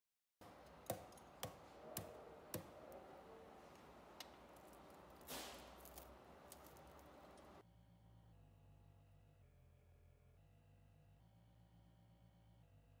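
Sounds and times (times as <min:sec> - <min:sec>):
short scraping rustle: 0:04.8 - 0:07.6.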